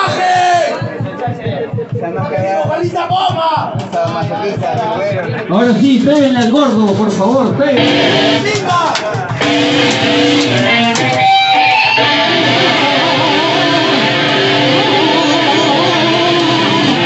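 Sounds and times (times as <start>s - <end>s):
live band playing: 0.0s - 17.0s
loud electric guitar riff: 7.7s - 17.0s.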